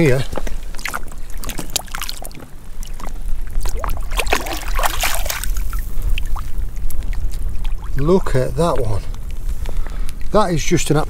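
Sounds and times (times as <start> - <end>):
raindrops pattering on water: 0.0 - 11.0
water drips: 0.0 - 11.0
hand splashing through seawater: 3.6 - 6.4.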